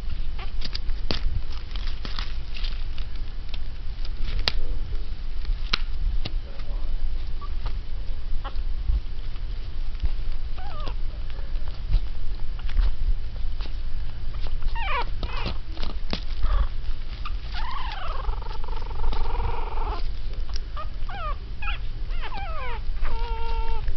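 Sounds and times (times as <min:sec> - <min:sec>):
steady low hum: 0:00.0 - 0:23.9
puppies yipping and whining: 0:07.3 - 0:07.7, 0:08.4 - 0:09.0, 0:10.5 - 0:11.7, 0:14.3 - 0:23.9.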